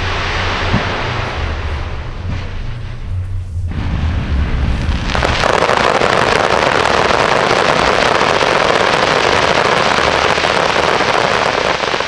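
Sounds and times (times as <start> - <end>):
low rumble: 0.0 - 8.5
firework shell bursts crackling: 5.0 - 12.0.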